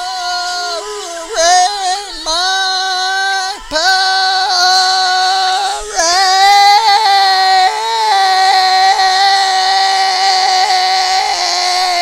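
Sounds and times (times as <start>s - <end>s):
man belting a high note: 0.0s - 12.0s.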